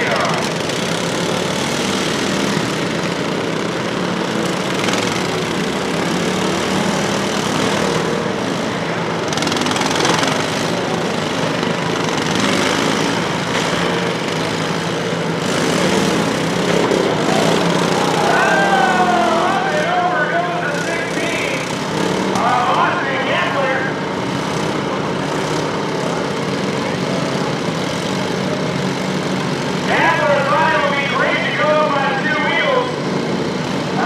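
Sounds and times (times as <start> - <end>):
lawn mower engines droning: 0.0 - 34.0.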